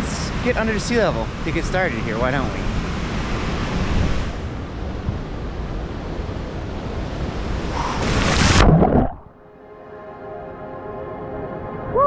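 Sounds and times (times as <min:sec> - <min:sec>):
ocean surf breaking: 0:00.0 - 0:09.2.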